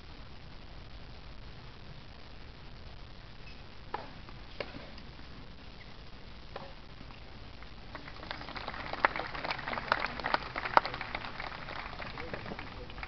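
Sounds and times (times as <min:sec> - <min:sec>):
spectators applauding: 0:07.9 - 0:13.0.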